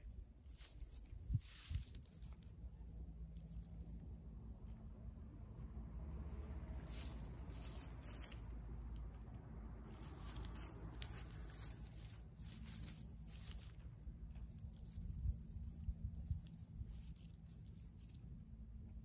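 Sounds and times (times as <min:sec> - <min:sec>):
dry grass rustling: 0:00.3 - 0:04.3, 0:06.6 - 0:18.9
cat chewing and crunching fish: 0:06.8 - 0:18.6.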